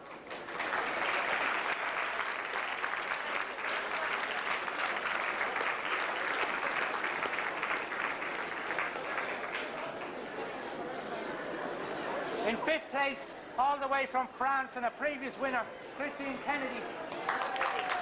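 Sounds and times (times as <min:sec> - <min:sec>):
audience applauding: 0:00.0 - 0:11.8, 0:16.2 - 0:18.0.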